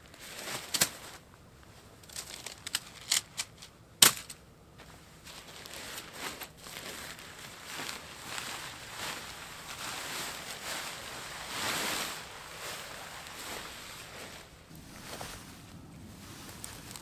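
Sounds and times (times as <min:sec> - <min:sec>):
tent fabric rustling and crinkling: 0:00.0 - 0:17.0.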